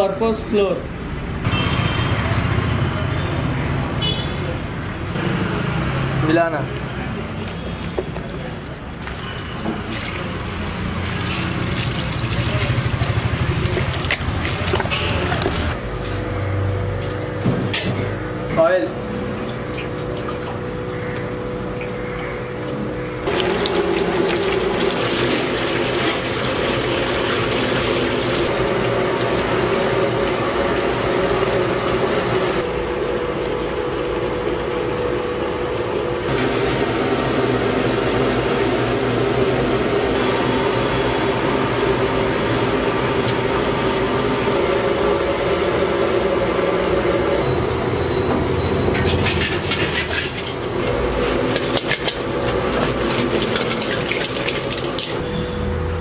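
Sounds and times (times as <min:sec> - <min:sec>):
oil sizzling deep-frying: 0:08.8 - 0:15.8, 0:23.2 - 0:32.6, 0:36.4 - 0:47.5, 0:48.4 - 0:55.3
metal skimmer scraping pan: 0:48.8 - 0:55.2.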